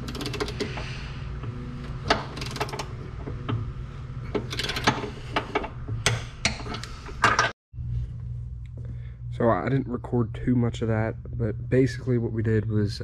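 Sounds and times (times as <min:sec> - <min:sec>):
socket ratchet clicking: 0:00.0 - 0:00.7, 0:02.1 - 0:02.9
steady low hum: 0:00.0 - 0:13.0.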